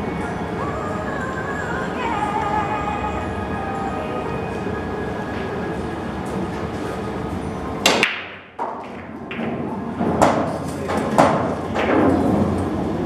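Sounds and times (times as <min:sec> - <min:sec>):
cue ball cracking into rack: 0:07.8 - 0:12.5
pool balls knocking: 0:07.8 - 0:12.6.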